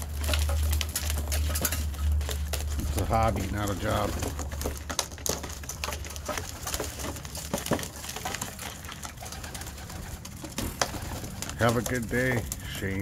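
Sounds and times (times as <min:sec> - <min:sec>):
pigeons cooing: 0:08.0 - 0:12.7.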